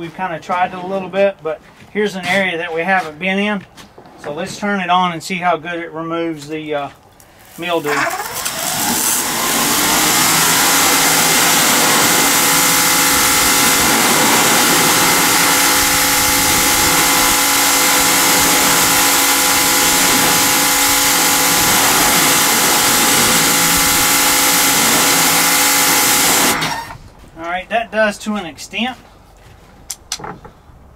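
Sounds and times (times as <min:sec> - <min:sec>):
pressure washer motor hum: 0:07.4 - 0:26.9
water jet hissing on wood: 0:07.5 - 0:26.7.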